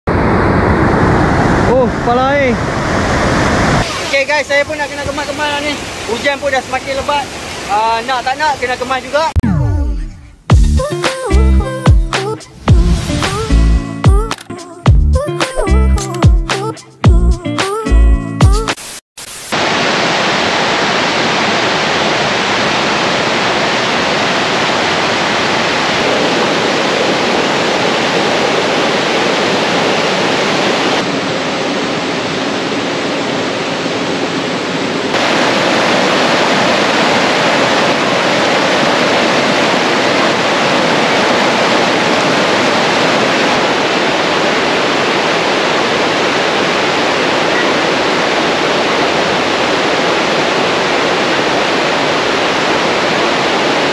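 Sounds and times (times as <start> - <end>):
river rushing over rocks: 2.4 - 9.3, 19.5 - 53.9.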